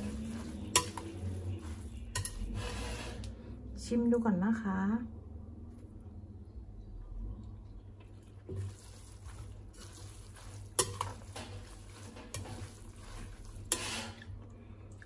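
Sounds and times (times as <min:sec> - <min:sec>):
metal spoon scraping glass bowl: 0:00.0 - 0:03.3, 0:10.4 - 0:14.3.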